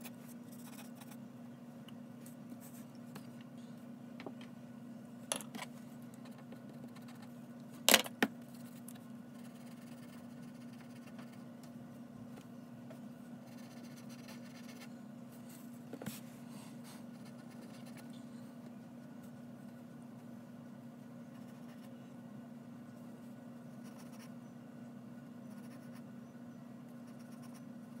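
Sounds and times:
steady low hum: 0.0 - 28.0
pencil scratching on paper: 0.5 - 1.2, 9.4 - 11.4, 13.5 - 14.9, 17.1 - 18.1, 25.5 - 26.0.

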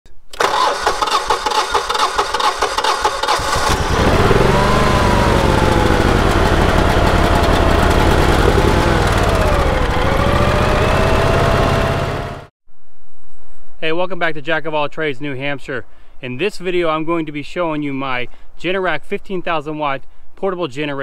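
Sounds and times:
generator engine cranking and running: 0.4 - 12.5.

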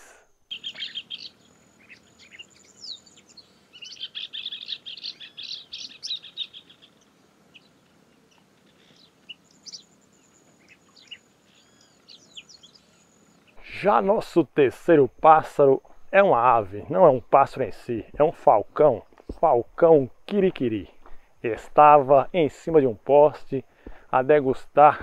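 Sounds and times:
parrotlet chirping: 0.5 - 10.0.

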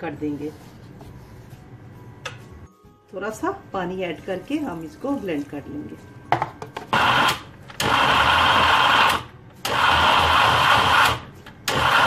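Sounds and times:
electric blender grinding: 6.9 - 12.0.

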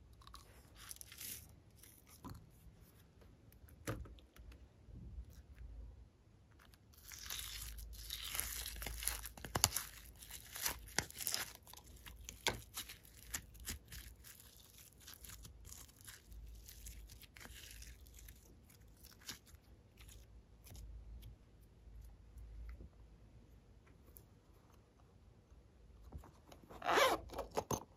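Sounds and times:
glitter slime crinkling and clicking: 7.0 - 20.2.

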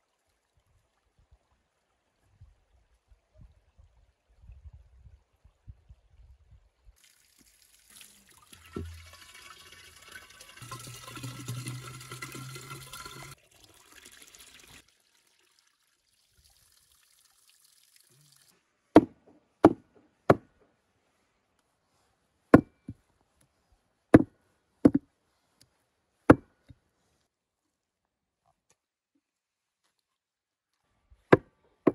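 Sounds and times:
water splashing into clay jug: 7.0 - 18.5.

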